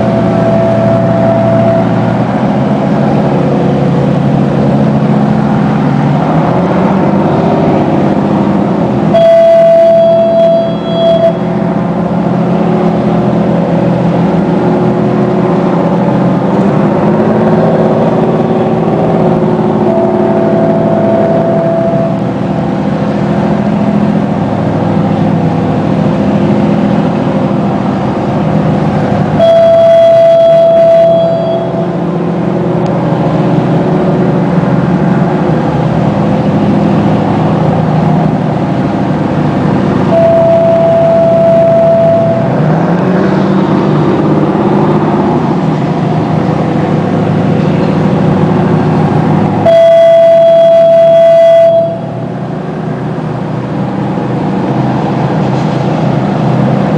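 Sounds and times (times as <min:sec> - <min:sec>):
fog horn: 0:00.0 - 0:02.3, 0:09.1 - 0:11.7, 0:19.6 - 0:22.3, 0:29.4 - 0:32.1, 0:40.1 - 0:42.6, 0:49.6 - 0:52.3
boat diesel engines running: 0:00.0 - 0:56.9.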